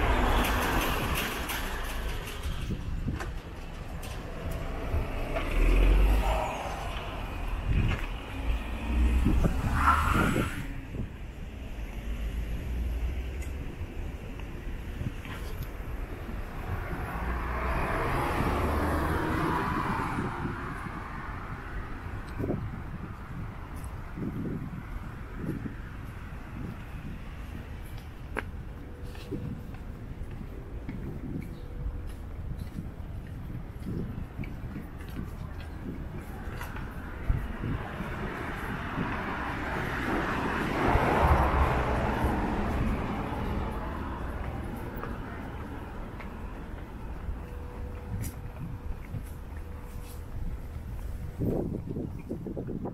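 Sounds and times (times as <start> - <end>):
road vehicle passing by: 0.0 - 52.9
vehicle passing by: 3.8 - 11.0, 16.3 - 21.6, 36.5 - 48.9.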